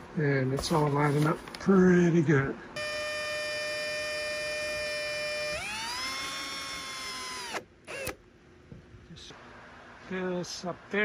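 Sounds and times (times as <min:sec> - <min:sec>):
power drill motor whine: 0:02.8 - 0:08.2.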